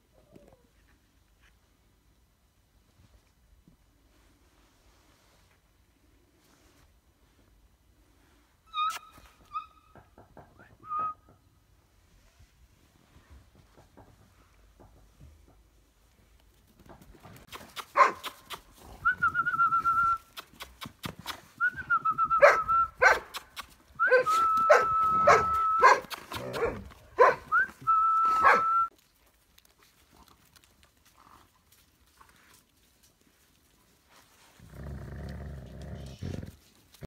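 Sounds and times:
puppies whining: 24.0 - 26.7.

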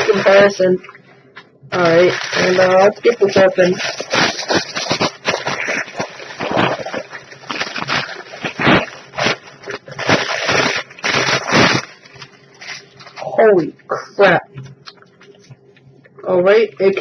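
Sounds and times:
plastic bag crinkling: 0.0 - 0.6, 1.7 - 13.4.

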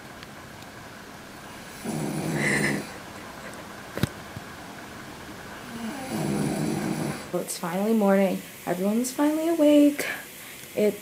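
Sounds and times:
woman snoring: 1.6 - 3.0, 5.6 - 7.4.

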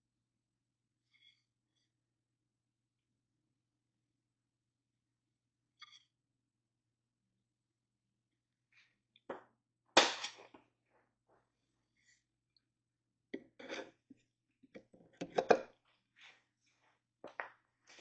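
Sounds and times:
wooden parts knocking: 14.7 - 15.7.

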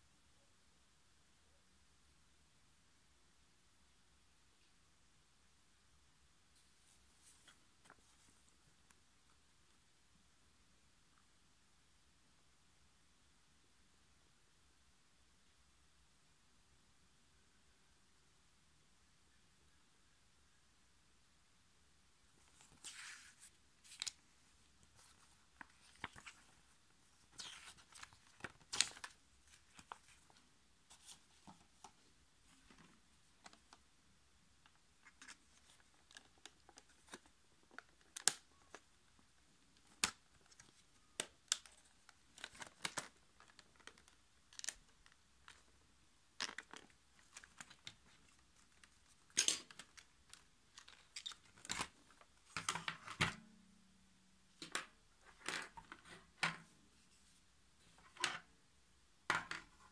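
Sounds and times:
paper pages rustling: 22.4 - 24.2, 24.9 - 33.7.

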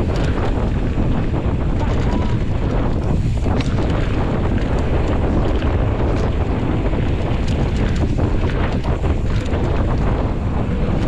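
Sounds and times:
bike knocks and ticks: 0.0 - 11.0
tyres rolling on dirt: 0.0 - 11.0
wind noise on microphone: 0.0 - 11.0.

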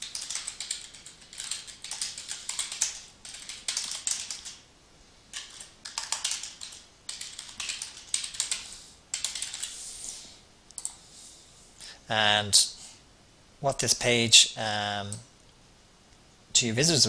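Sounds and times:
typing on computer keyboard: 0.0 - 4.6, 5.3 - 9.8.

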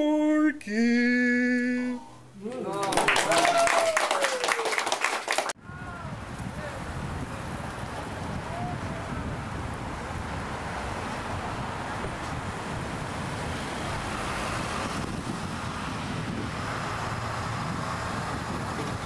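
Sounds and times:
cars driving past: 5.9 - 19.0
delivery truck passing: 6.1 - 19.0.

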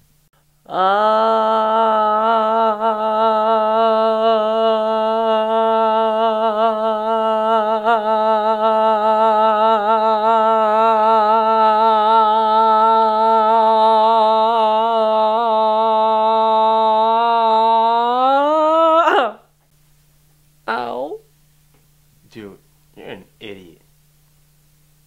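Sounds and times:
person holding long note: 0.7 - 19.5.

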